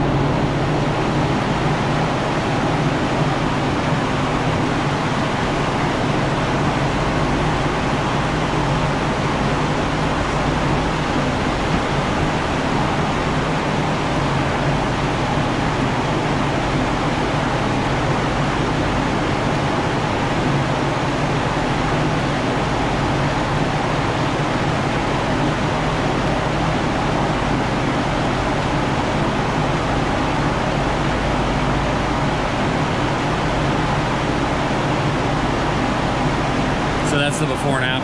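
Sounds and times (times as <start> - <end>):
low hum: 0.0 - 17.1
machinery rushing noise: 36.4 - 38.0.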